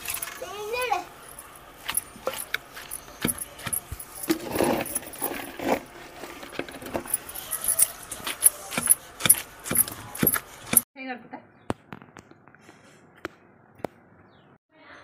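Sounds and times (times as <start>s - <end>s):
glass bangles jingling: 1.2s - 5.4s, 7.0s - 10.8s
pestle pounding in stone mortar: 8.1s - 10.8s.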